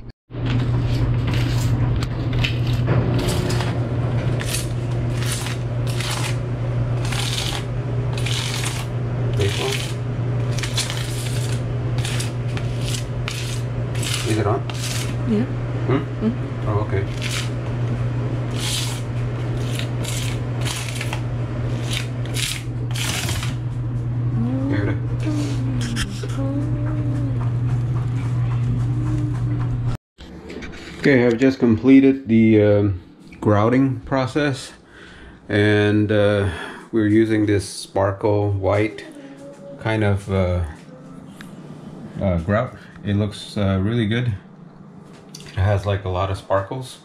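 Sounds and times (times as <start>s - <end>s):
steady low hum: 0.0s - 47.0s
hand tool scraping grout: 7.0s - 15.2s, 18.5s - 23.5s
knife scraping tile edges: 9.4s - 15.2s.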